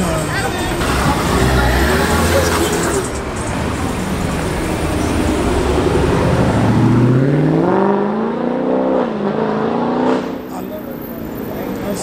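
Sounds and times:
car engine rumble: 0:00.0 - 0:12.0
engine revving up: 0:00.8 - 0:03.2, 0:04.3 - 0:10.5.

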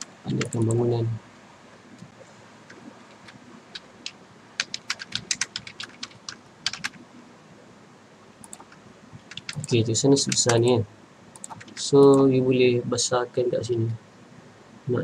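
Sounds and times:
keyboard typing: 0:00.0 - 0:00.8, 0:02.7 - 0:07.0, 0:08.4 - 0:12.3.

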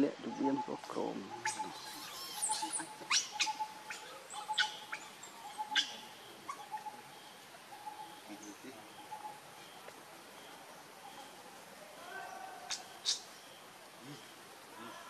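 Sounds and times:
high animal chirps: 0:01.3 - 0:06.9.

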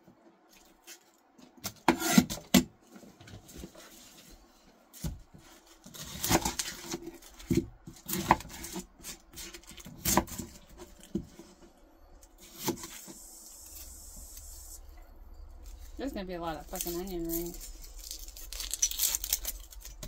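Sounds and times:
onion skin rustling: 0:05.0 - 0:20.0.

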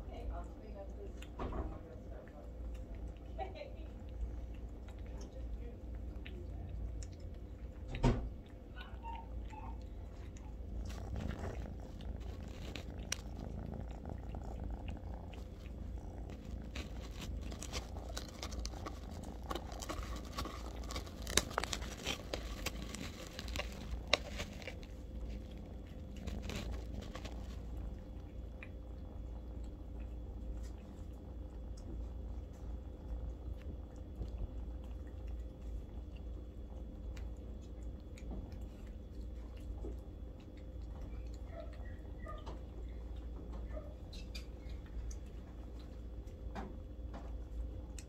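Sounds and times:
low purring: 0:00.0 - 0:35.1
kittens chewing and lapping: 0:00.0 - 0:48.0.

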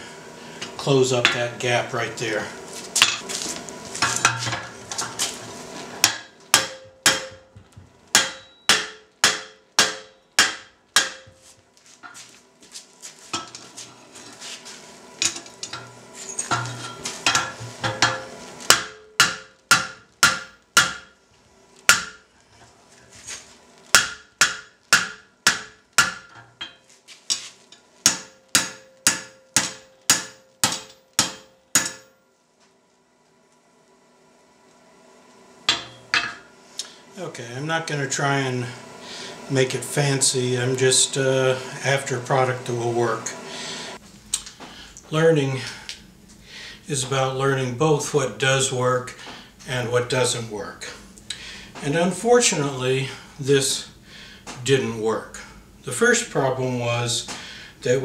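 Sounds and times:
hammer ringing on hot metal: 0:06.0 - 0:11.5, 0:15.6 - 0:21.2, 0:21.9 - 0:22.3, 0:23.9 - 0:26.8, 0:28.0 - 0:32.3, 0:35.7 - 0:36.5.

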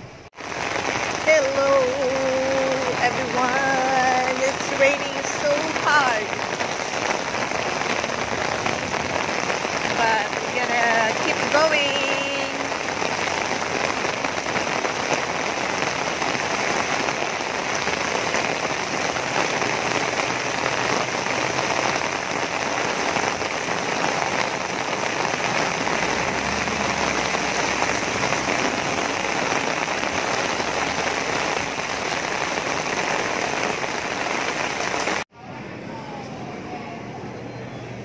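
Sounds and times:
heavy rain on an umbrella: 0:00.0 - 0:35.3.

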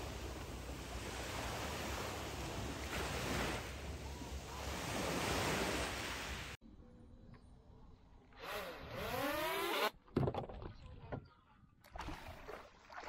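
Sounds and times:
sea water rushing: 0:00.0 - 0:06.6.

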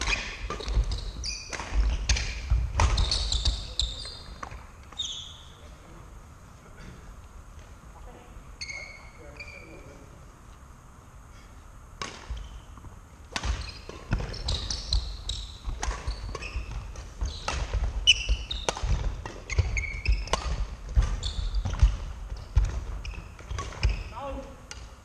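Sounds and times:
rackets hitting shuttlecock: 0:00.0 - 0:05.0, 0:12.0 - 0:24.9
shoes squeaking on wooden floor: 0:00.0 - 0:05.6, 0:12.3 - 0:24.2.

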